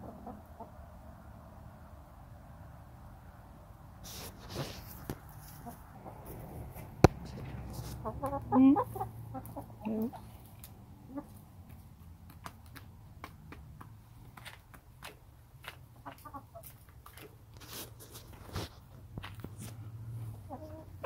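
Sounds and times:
hens clucking: 0.0s - 1.0s, 4.1s - 21.0s
beaks pecking at feed: 7.0s - 18.4s.

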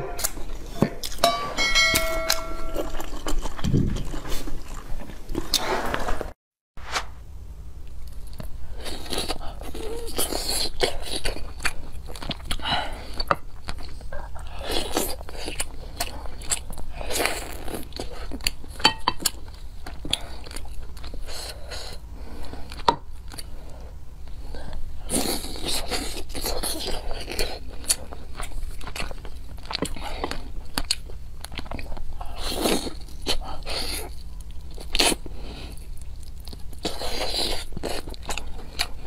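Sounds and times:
chewing meat off a rib: 2.8s - 5.6s, 7.9s - 39.0s.

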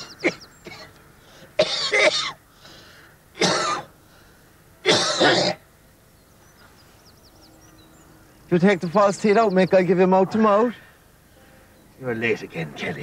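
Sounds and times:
man coughing and hacking: 0.2s - 0.9s, 1.6s - 2.4s, 3.4s - 3.9s, 4.8s - 5.6s.

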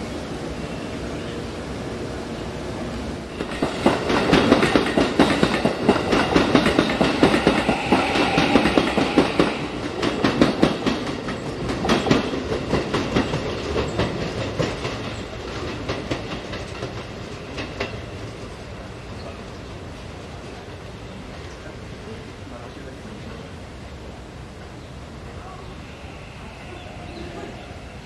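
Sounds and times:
train wheels clacking over rails: 3.3s - 19.3s.

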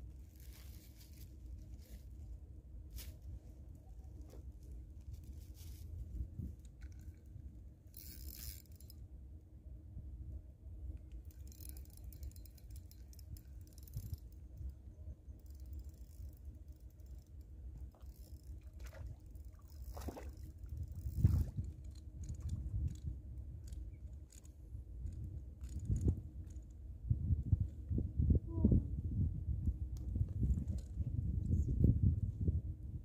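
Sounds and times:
steady low rumble: 0.0s - 33.0s
fishing reel clicks and scrapes: 6.6s - 9.0s, 11.2s - 14.7s, 15.4s - 18.6s, 19.6s - 26.7s.

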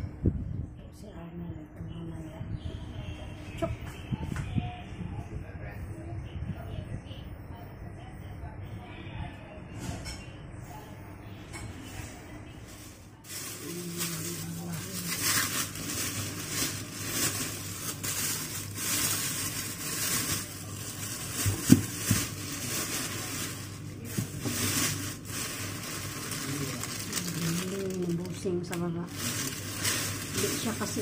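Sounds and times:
plastic bags rustling: 12.7s - 31.0s.

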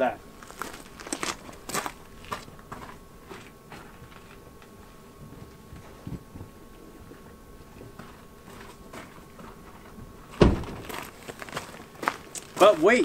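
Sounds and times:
footsteps on gravel: 0.3s - 13.0s
loud thump: 10.4s - 11.0s.

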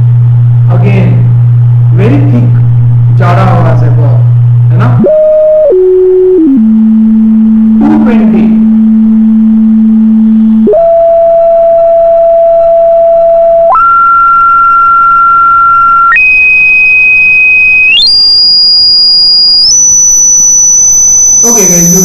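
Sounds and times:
sine tone stepping up in pitch: 0.0s - 22.0s.

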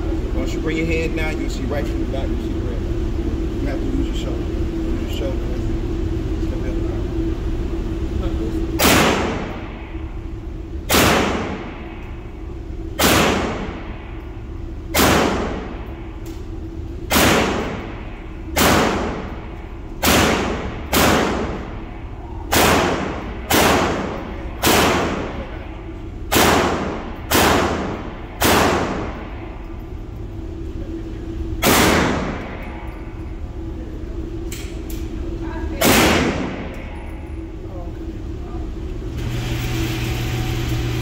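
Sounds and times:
pistol gunshots echoing indoors: 8.8s - 10.0s, 10.8s - 12.2s, 12.9s - 16.4s, 17.0s - 30.0s, 31.6s - 33.3s, 35.8s - 37.3s.

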